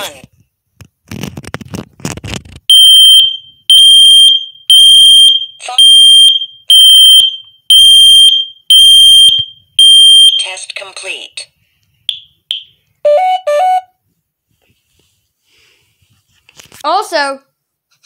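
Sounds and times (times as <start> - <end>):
smoke alarm beeping: 2.7 - 10.5, 12.1 - 14.0.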